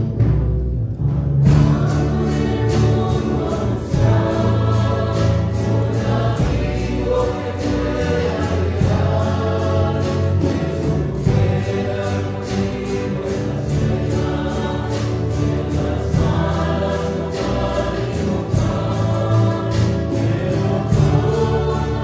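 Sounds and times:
acoustic guitars strumming: 0.0 - 22.0
choir singing a hymn: 1.4 - 22.0.

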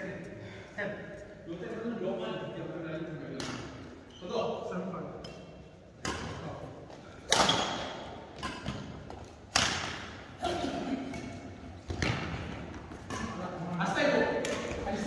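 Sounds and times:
rackets smacking shuttlecocks: 3.3 - 4.0, 5.2 - 15.0.

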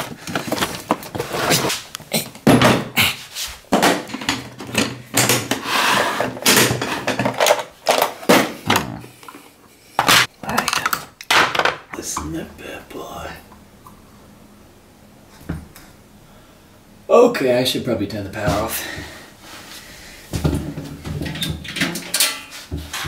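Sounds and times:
rummaging in a cupboard: 0.0 - 12.3, 18.4 - 23.0
tools rattling in plastic tray: 6.2 - 8.3.

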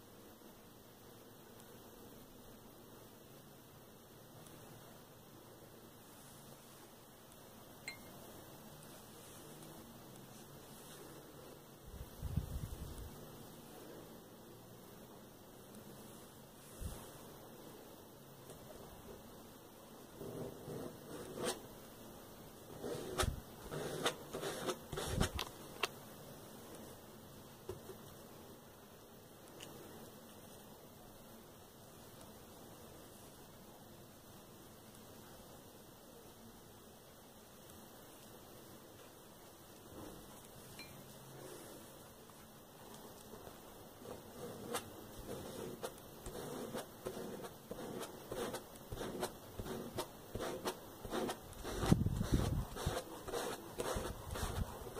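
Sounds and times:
plastic card scraping paint on fabric: 20.2 - 21.6, 22.7 - 25.5, 44.0 - 54.9.

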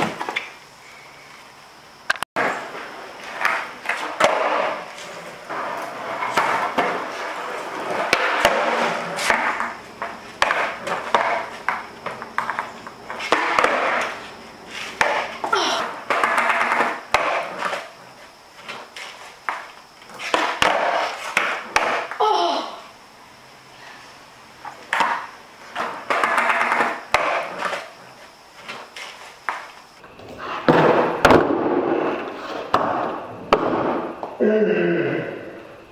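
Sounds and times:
skateboard wheels rolling on concrete: 0.0 - 22.3, 24.5 - 34.5
skateboard clacks: 2.4 - 14.2, 15.0 - 18.0, 18.6 - 22.2, 24.9 - 27.9, 28.6 - 34.4.

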